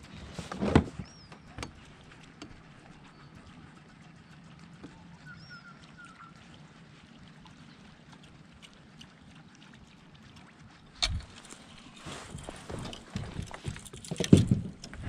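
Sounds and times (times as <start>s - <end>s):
water lapping against kayak hull: 0.0s - 15.0s
faint bird chirps: 4.2s - 6.4s.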